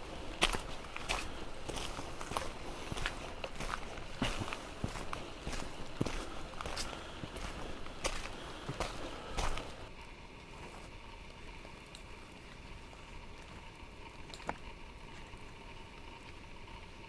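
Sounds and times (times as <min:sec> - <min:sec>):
footstep on dirt trail: 0:00.0 - 0:09.9.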